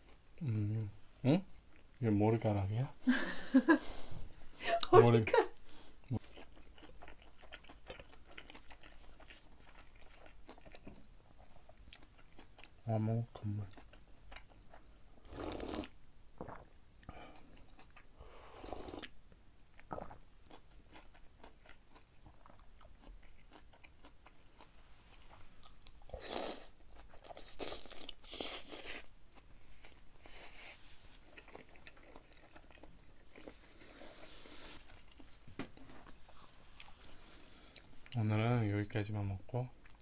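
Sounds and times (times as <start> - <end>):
person slurping broth: 15.3 - 16.7, 18.2 - 19.1, 26.2 - 26.8.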